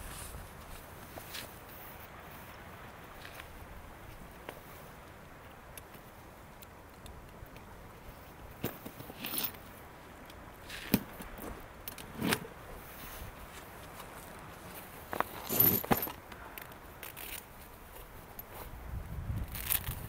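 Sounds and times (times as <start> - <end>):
rustling and scraping: 0.0 - 2.6, 8.6 - 9.8, 10.6 - 18.8
handling clicks and knocks: 15.1 - 18.6.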